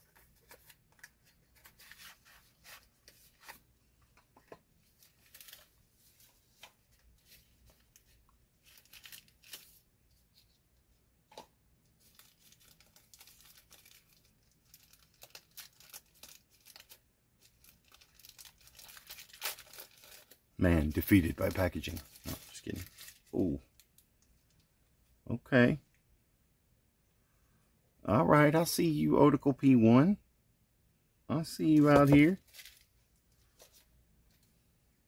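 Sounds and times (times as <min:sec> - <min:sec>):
packaging crinkling and tearing: 0:05.0 - 0:06.2, 0:07.2 - 0:09.8, 0:12.0 - 0:24.0, 0:31.8 - 0:32.9.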